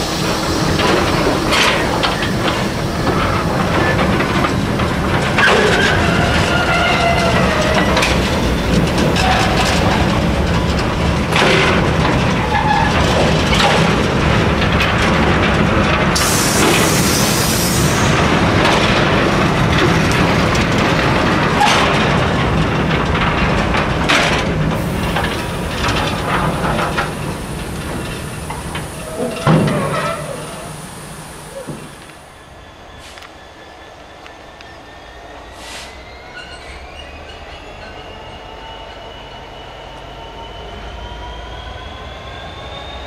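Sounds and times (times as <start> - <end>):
wheels and couplings clanking: 0.0 - 32.4
freight train rolling past: 0.0 - 43.0
brief hiss: 35.6 - 36.0.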